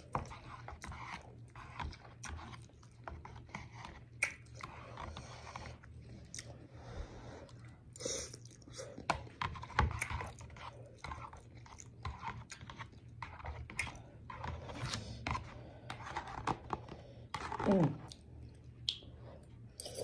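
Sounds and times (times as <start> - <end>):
chewing and mouth smacking: 4.1 - 4.7, 5.8 - 6.6, 7.5 - 14.0.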